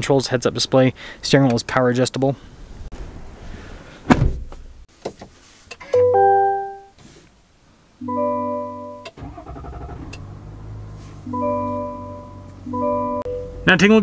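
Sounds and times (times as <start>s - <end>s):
electric piano chords: 6.0s - 6.9s, 8.0s - 9.1s, 11.3s - 13.6s.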